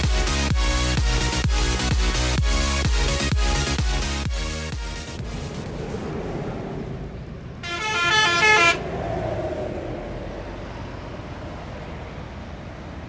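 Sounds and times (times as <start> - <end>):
truck engine rumble: 0.0 - 13.0
truck air horn blast: 7.6 - 8.8.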